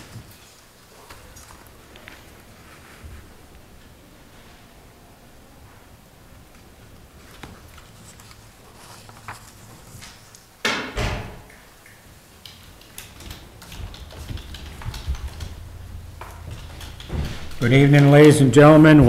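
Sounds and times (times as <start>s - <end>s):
door banging shut: 10.7s - 11.5s, 12.8s - 18.4s
light clicks and rustles: 11.8s - 18.4s.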